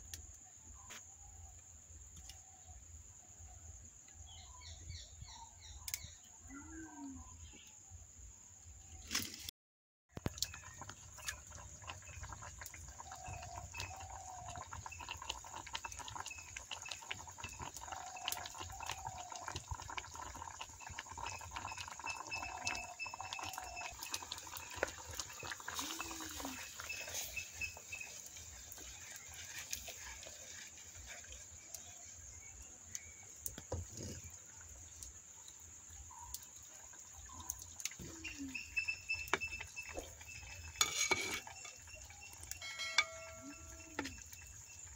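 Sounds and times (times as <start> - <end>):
broth bubbling: 10.2 - 44.9.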